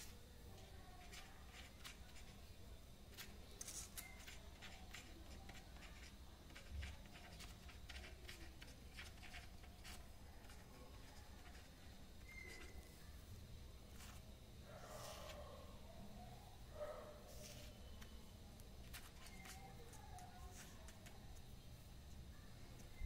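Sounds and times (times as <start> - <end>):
pen writing on paper: 3.2 - 12.7.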